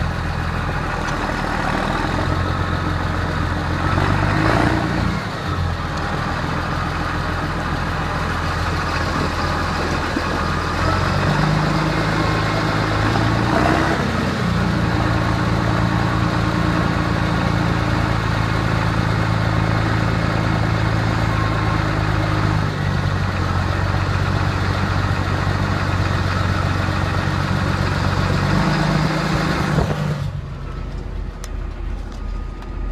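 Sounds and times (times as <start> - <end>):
tractor diesel engine running: 0.0 - 32.9.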